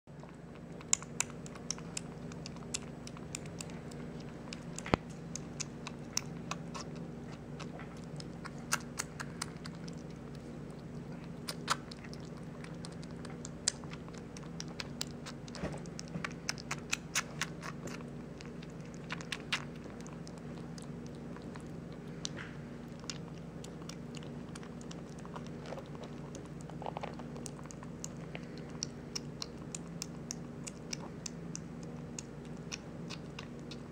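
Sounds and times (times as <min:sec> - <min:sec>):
steady low hum: 0:00.0 - 0:33.9
kitten eating wet food: 0:00.1 - 0:33.9.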